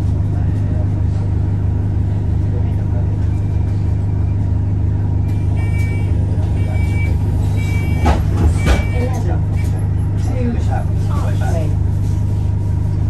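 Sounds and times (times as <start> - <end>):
bus engine idling: 0.0 - 13.0
short high warning beep: 5.3 - 9.7.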